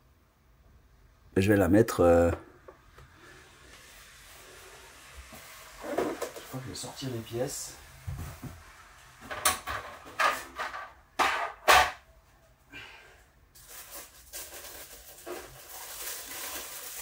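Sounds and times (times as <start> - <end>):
packaging scraping rustles: 13.6 - 17.0.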